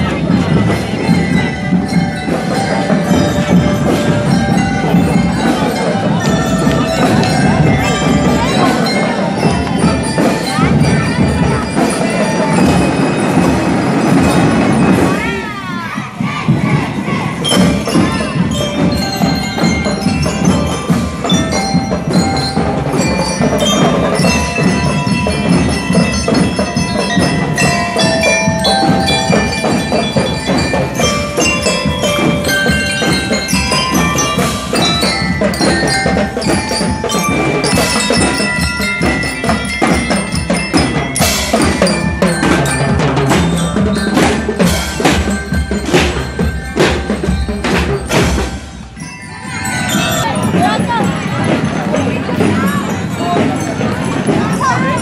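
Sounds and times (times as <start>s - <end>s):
bass drum beats: 0.0s - 15.4s, 16.1s - 55.0s
ringing metal bar melody: 17.4s - 55.0s.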